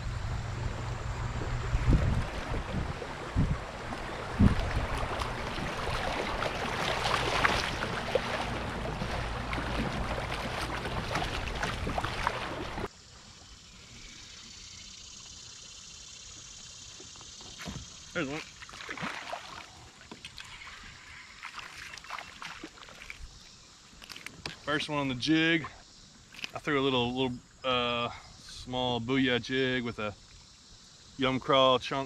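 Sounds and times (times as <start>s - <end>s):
low rumble: 0.0s - 12.9s
rushing water: 0.0s - 12.9s, 17.6s - 23.3s
kayak paddle splashing: 0.1s - 13.6s, 16.4s - 26.7s.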